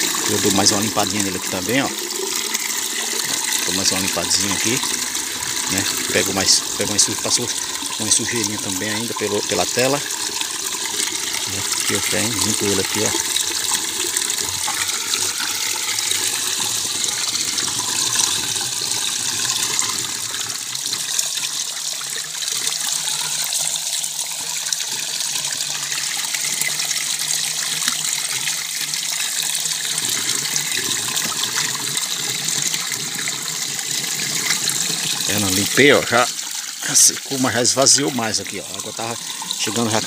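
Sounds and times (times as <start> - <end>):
water splashing: 0.0 - 21.5
water pouring into plastic barrel: 0.0 - 40.0.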